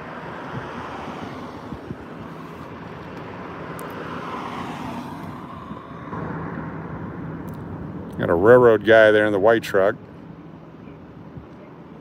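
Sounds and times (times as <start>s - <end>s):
car passing close by: 0.0s - 7.2s
low engine hum: 0.0s - 12.0s
steady traffic noise: 0.0s - 12.0s.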